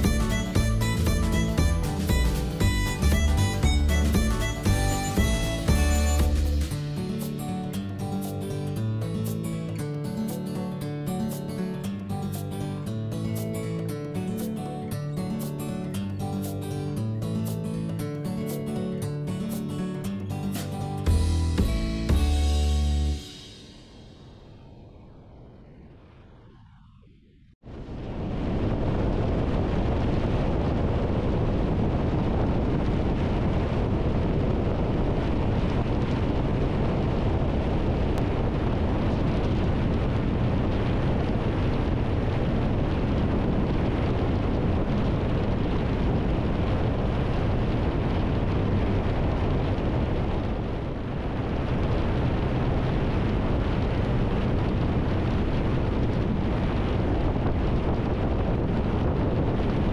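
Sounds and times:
wind rushing over microphone: 0:00.0 - 0:09.7, 0:21.0 - 0:59.9
motorcycle engine and tyre drone: 0:23.0 - 0:28.0.

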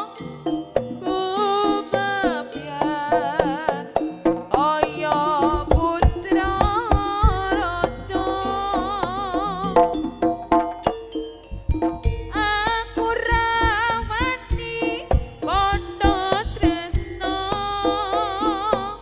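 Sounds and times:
woman singing: 0:01.0 - 0:10.0, 0:12.3 - 0:19.0
hand drum strokes: 0:05.5 - 0:10.9
deep low drum strokes: 0:05.6 - 0:10.9, 0:11.6 - 0:17.5.

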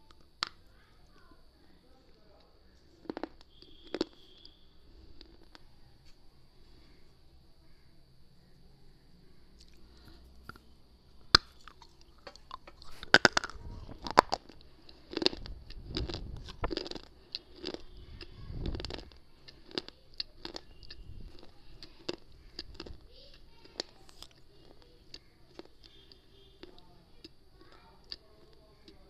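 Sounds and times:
crunching a hard cube: 0:02.8 - 0:05.6, 0:11.2 - 0:28.2.

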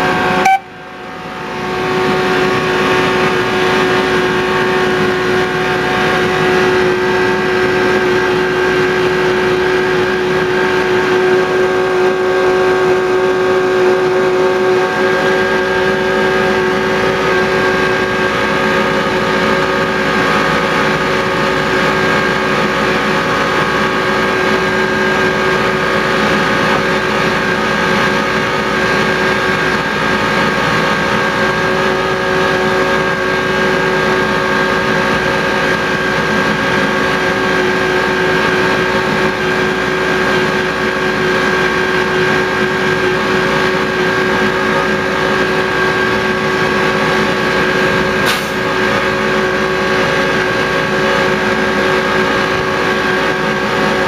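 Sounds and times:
locomotive engine running: 0:00.0 - 0:54.0
sharp click: 0:48.3 - 0:48.6.

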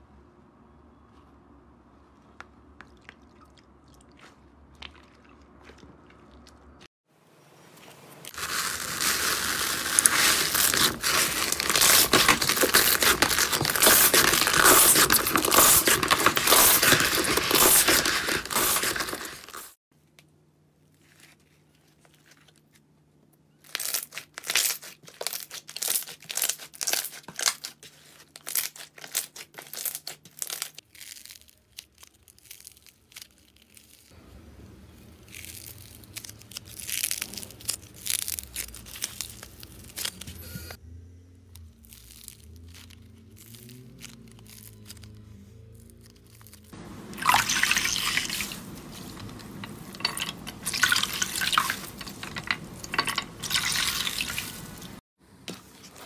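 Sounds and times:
slime popping and crackling: 0:08.3 - 0:19.7, 0:23.7 - 0:27.8, 0:35.1 - 0:40.2
foam slime bubbles crackling: 0:08.3 - 0:19.8, 0:47.0 - 0:55.0.

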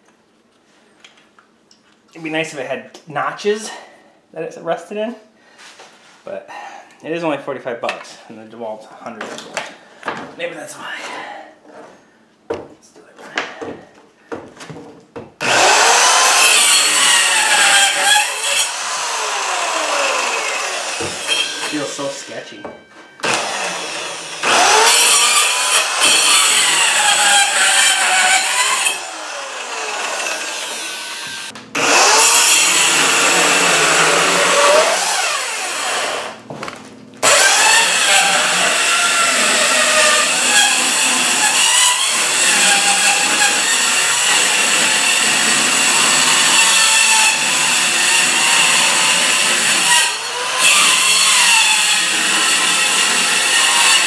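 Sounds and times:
circular saw cutting wood: 0:15.4 - 0:22.6, 0:23.2 - 0:36.4, 0:37.2 - 0:54.0.

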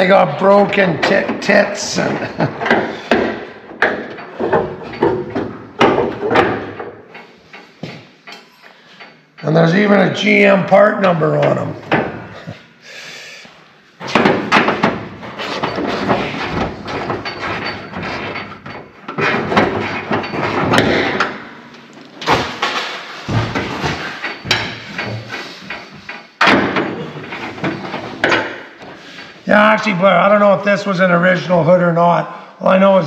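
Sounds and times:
knocks and rattles of car parts: 0:00.0 - 0:12.6, 0:14.0 - 0:29.9
sharp metal bangs: 0:14.1 - 0:25.4.

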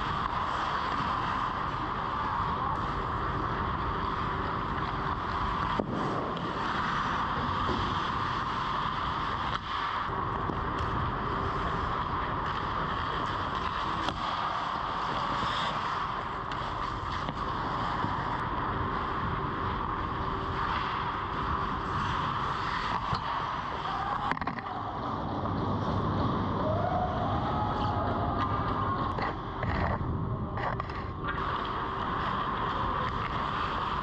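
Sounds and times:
steady rushing rink noise: 0:00.0 - 0:34.0
sticks or pucks clicking on ice: 0:30.6 - 0:31.7.

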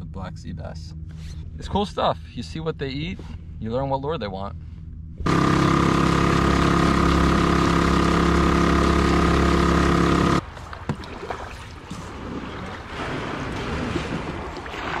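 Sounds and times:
outboard motor running: 0:04.6 - 0:15.0
lapping water: 0:10.4 - 0:15.0
wind: 0:10.4 - 0:15.0.

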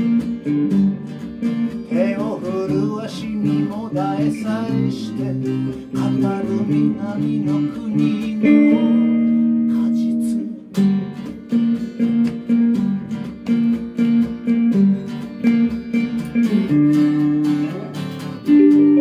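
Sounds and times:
acoustic guitar strumming: 0:00.0 - 0:19.0
electric guitar melody: 0:00.0 - 0:19.0
man singing: 0:01.8 - 0:10.8.

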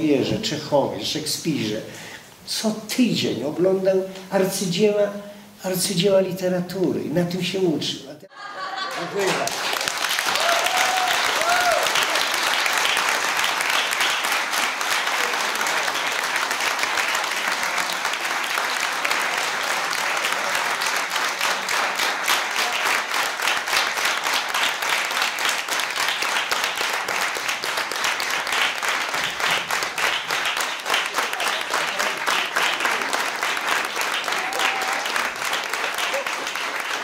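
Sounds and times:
audience applauding: 0:08.6 - 0:37.0.

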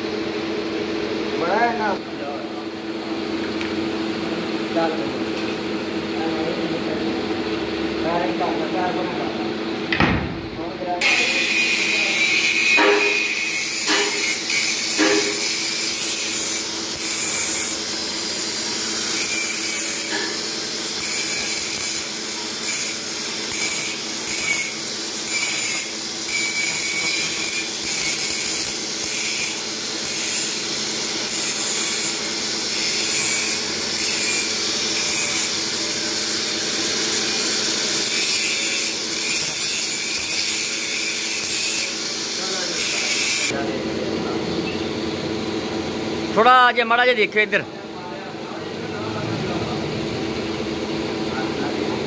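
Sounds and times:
angle grinder grinding steel: 0:11.0 - 0:43.6.

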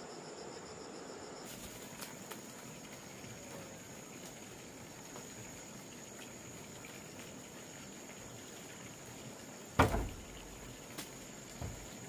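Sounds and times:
high-pitched insect drone: 0:00.0 - 0:01.5
loud thump: 0:09.8 - 0:10.2.

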